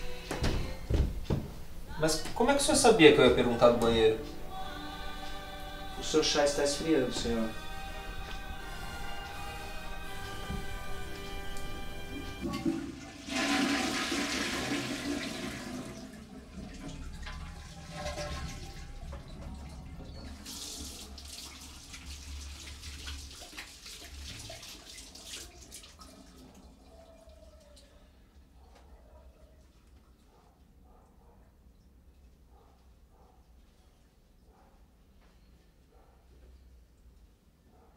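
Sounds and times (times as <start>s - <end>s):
toilet water rushing: 10.5s - 26.7s
toilet flush click: 12.4s - 21.6s.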